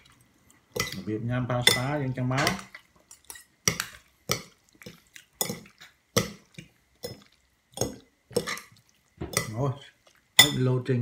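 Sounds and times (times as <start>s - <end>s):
forks clinking against ceramic bowl: 0.8s - 4.0s.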